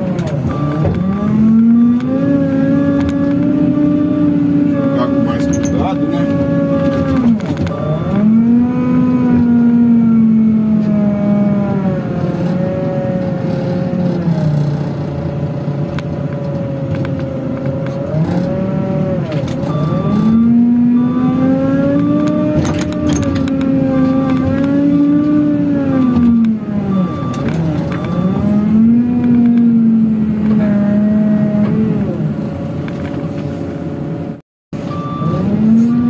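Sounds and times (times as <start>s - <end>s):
diesel engine under load: 0.0s - 36.0s
reverse alarm beeping: 0.5s - 2.9s, 7.7s - 9.2s, 19.6s - 23.3s, 25.8s - 29.2s, 34.8s - 36.0s.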